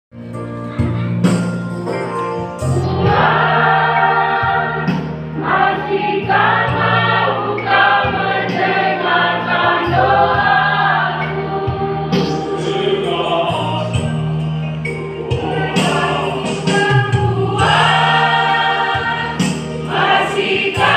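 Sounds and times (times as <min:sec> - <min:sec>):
choir singing in harmony: 0:02.6 - 0:20.9.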